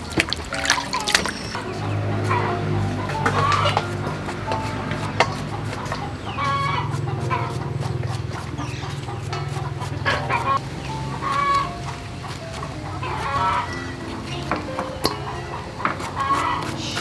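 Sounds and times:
chickens clucking: 0.0 - 17.0
knife cutting gourd: 3.1 - 13.8, 15.9 - 17.0.

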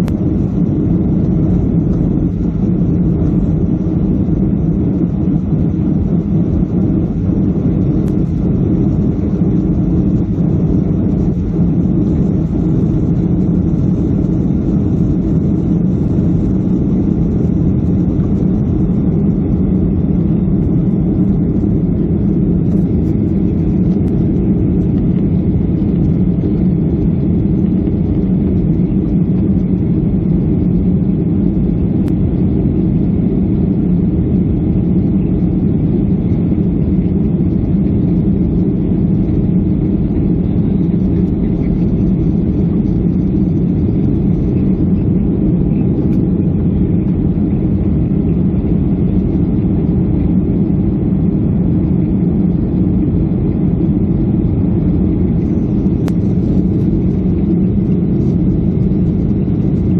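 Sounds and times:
jet cabin engine drone: 0.0 - 59.9.

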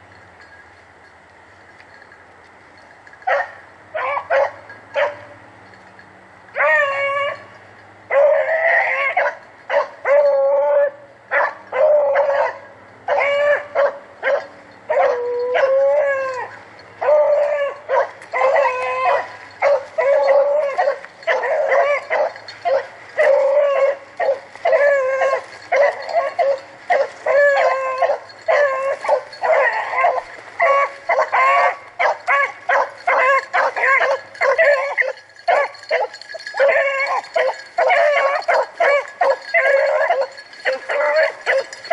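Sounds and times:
hounds baying and yelping: 2.8 - 41.9.

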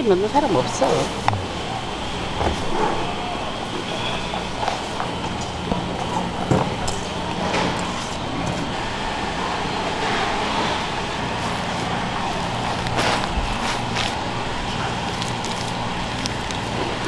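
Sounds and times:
background hum: 0.0 - 17.0
hands mixing filling rustling: 3.9 - 17.0.

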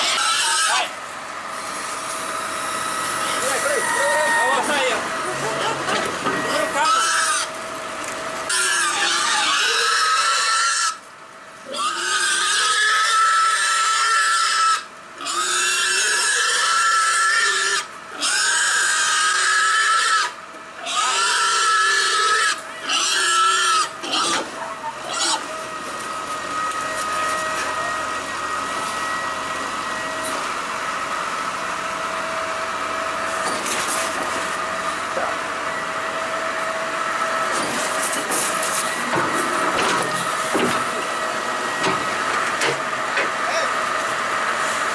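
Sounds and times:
pig squealing: 0.0 - 1.0, 3.2 - 7.6, 8.5 - 11.0, 11.6 - 25.6
loader engine and hydraulics whine: 0.0 - 44.9.

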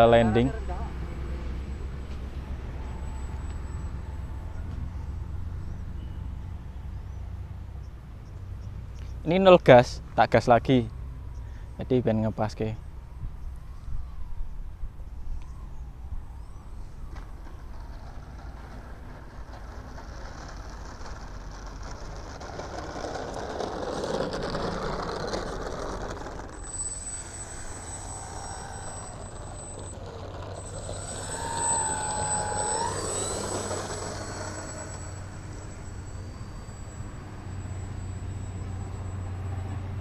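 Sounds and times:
motor whine: 15.4 - 40.0
model airplane propeller: 16.3 - 40.0.

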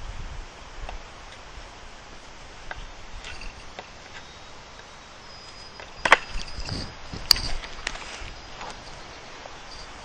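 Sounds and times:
wind rumble on microphone: 0.0 - 3.8, 5.8 - 10.0.

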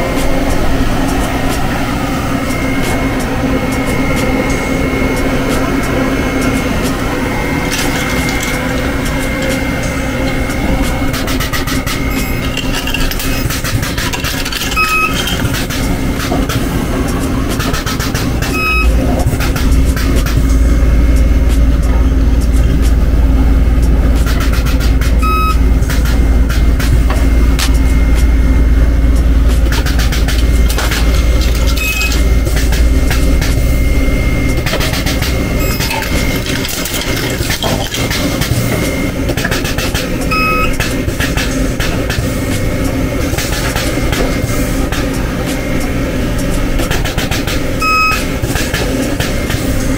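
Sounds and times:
welder electrical hum: 0.0 - 49.9
short high beeps: 14.8 - 15.2, 18.6 - 18.9, 40.3 - 40.7, 47.8 - 48.2.

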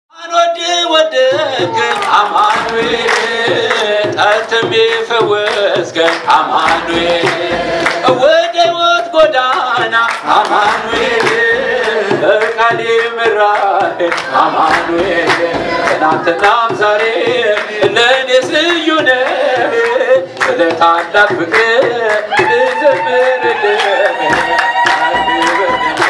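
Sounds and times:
man singing a hymn: 0.1 - 26.0
hand claps: 1.3 - 26.0
hand drum beat: 1.3 - 26.0.

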